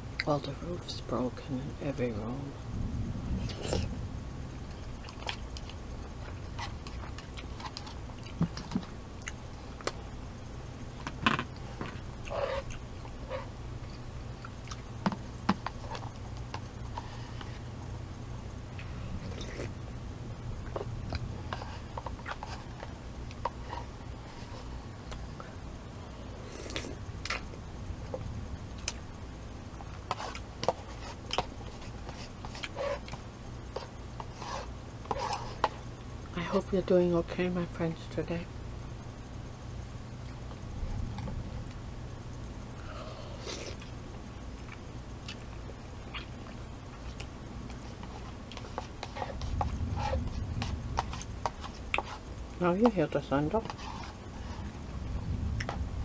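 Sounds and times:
low hum: 0.0 - 56.0
person chewing and smacking: 4.8 - 10.0, 11.4 - 17.0, 29.8 - 34.4, 44.6 - 52.2.

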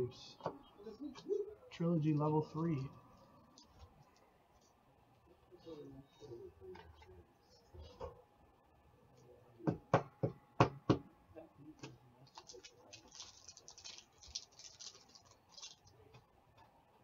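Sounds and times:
foil wrapper crinkling: 12.3 - 16.1.

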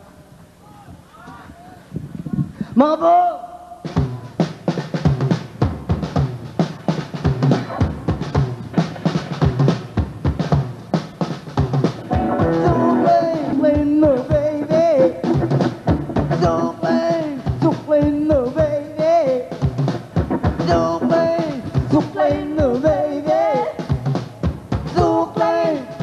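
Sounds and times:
drum kit steady beat: 3.8 - 26.0
man singing: 12.2 - 15.5, 16.3 - 19.6, 20.6 - 24.0, 24.9 - 26.0.

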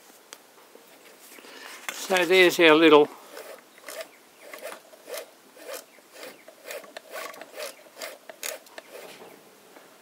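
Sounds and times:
toy sewing machine clatter: 3.3 - 9.2.

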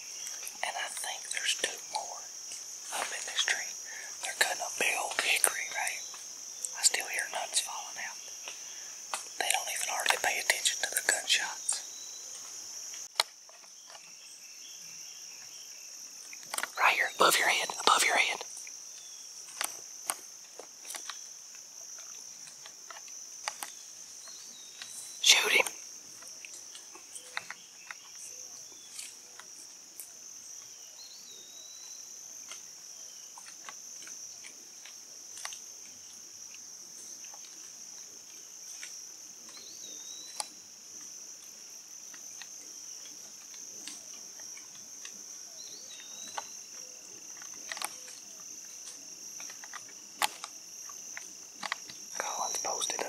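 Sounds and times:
insects chorus: 0.0 - 53.0
sharp ticks and snaps: 0.2 - 14.3, 15.4 - 31.0, 31.8 - 53.0.

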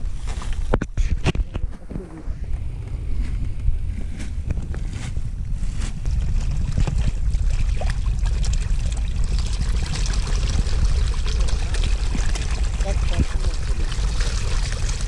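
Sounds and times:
steady low rumble: 0.0 - 15.0
fish splashing at surface: 6.3 - 15.0.

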